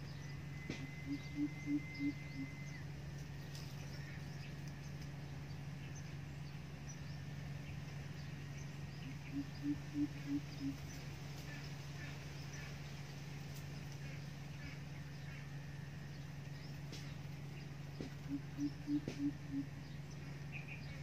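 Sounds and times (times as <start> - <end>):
bird giving deep hoots: 0.5 - 2.9, 9.1 - 10.9, 18.1 - 19.8.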